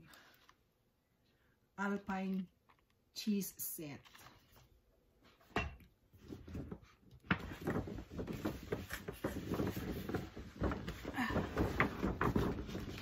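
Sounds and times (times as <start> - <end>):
packaging rustling: 6.3 - 13.0.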